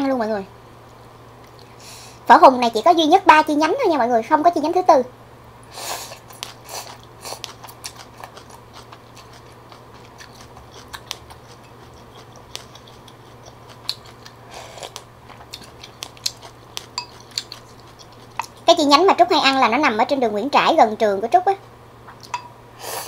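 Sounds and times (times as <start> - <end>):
slurping noodles: 5.7 - 8.0
soft chewing: 6.0 - 18.7
utensils tapping ceramic bowl: 17.0 - 17.4.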